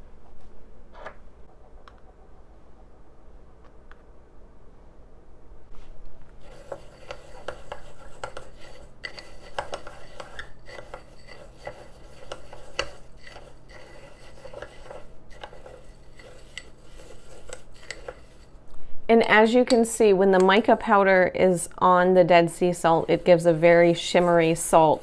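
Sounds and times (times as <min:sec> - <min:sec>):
salt crystals scraping: 0:06.4 - 0:18.6, 0:22.5 - 0:25.0.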